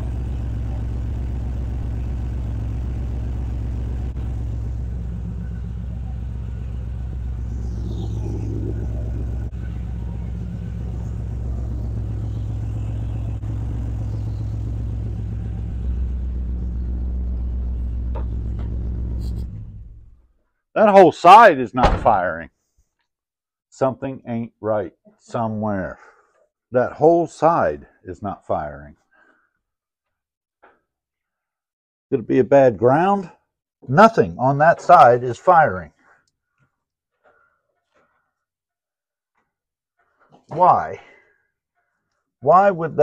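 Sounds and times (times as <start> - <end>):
misfiring car engine idling: 0.0 - 20.3.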